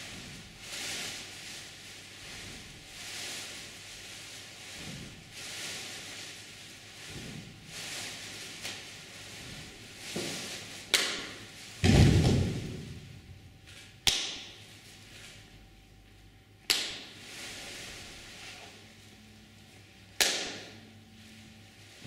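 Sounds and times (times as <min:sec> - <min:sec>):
heavy thud on wooden stage: 0:11.8 - 0:13.0
sharp percussive cracks: 0:14.0 - 0:14.6, 0:20.2 - 0:20.7.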